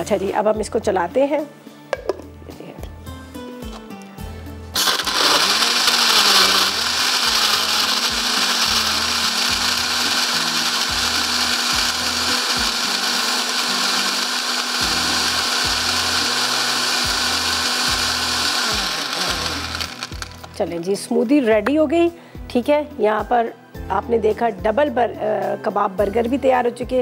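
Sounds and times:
blender running: 4.8s - 20.5s.

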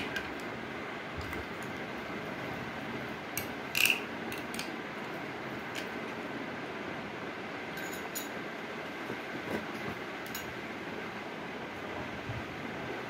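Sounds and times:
spoon clinking in glass: 7.7s - 8.4s.

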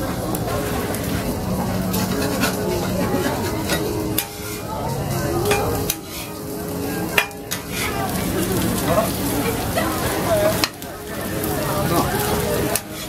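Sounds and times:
meat sizzling on a griddle: 0.0s - 13.0s
metal spatula scraping and tapping: 1.9s - 4.7s, 5.5s - 6.4s, 7.1s - 8.0s.

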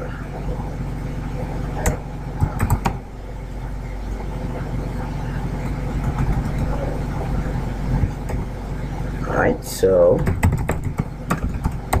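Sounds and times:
steady low hum: 0.0s - 12.0s
keyboard keystrokes: 10.2s - 12.0s.

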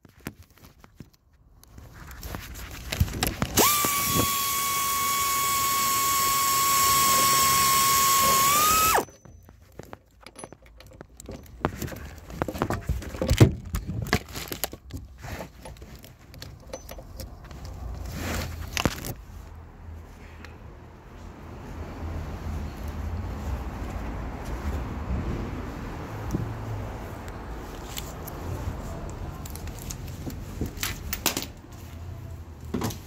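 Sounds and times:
power ratchet whining: 3.5s - 9.1s
metal clinks and knocks: 9.0s - 17.9s.

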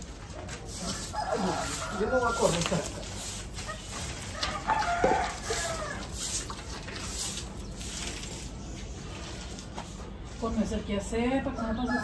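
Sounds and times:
rooster crowing: 0.9s - 2.6s, 4.3s - 6.1s.

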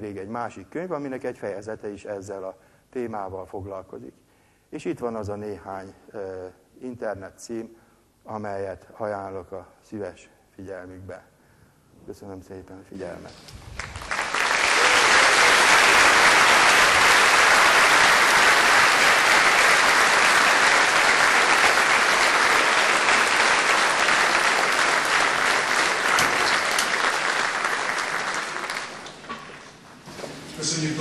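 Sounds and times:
large audience applauding: 13.6s - 29.8s.

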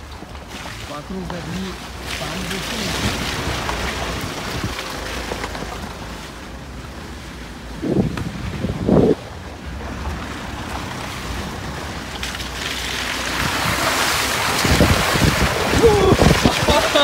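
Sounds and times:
car rumbling: 0.0s - 17.0s
tyres splashing through mud: 0.0s - 17.0s
wind buffeting microphone: 7.7s - 9.7s, 13.3s - 17.0s.

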